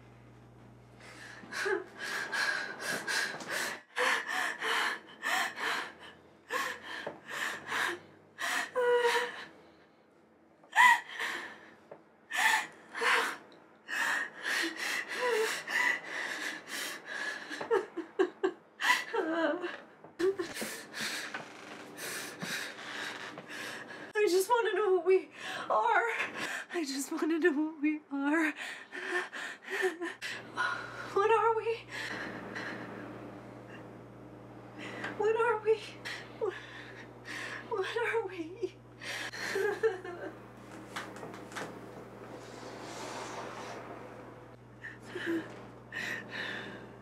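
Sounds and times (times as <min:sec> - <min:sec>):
woman sobbing: 0:01.2 - 0:03.0, 0:03.8 - 0:09.5, 0:10.7 - 0:11.6, 0:14.2 - 0:20.9, 0:28.1 - 0:31.8, 0:34.9 - 0:40.4, 0:44.8 - 0:46.7.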